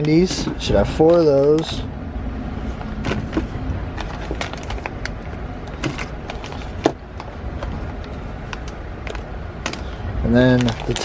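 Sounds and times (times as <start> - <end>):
low background rumble: 0.0 - 11.0
plastic bags rustling: 2.6 - 11.0.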